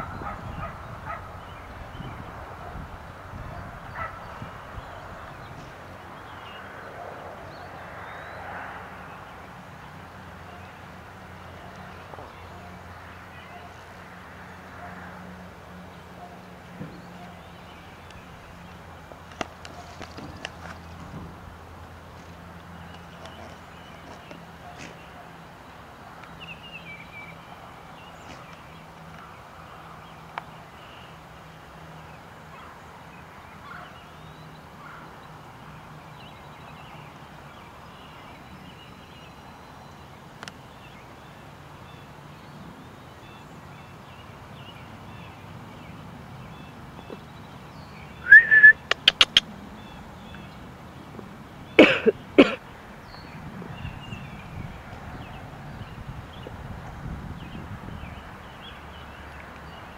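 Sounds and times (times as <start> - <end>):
faint outdoor background: 0.0 - 59.9
rapid quavering animal calls: 48.3 - 49.5.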